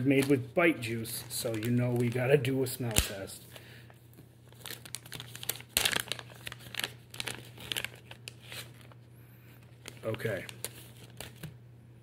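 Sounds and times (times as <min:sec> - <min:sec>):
plastic bag crinkling: 0:00.0 - 0:03.2, 0:04.5 - 0:09.0, 0:09.7 - 0:11.5.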